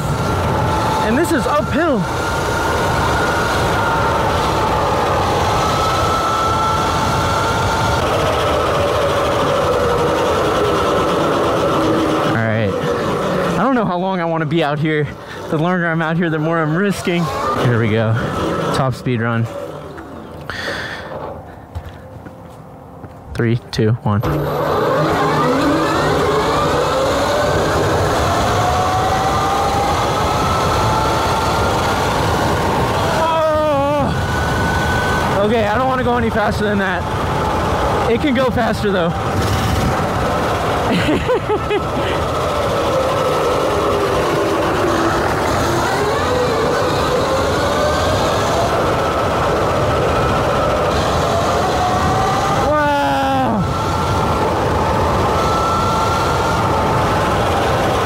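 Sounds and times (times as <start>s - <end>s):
electric motor whining: 0.0s - 22.4s, 24.2s - 58.0s
road and wind noise: 0.0s - 58.0s.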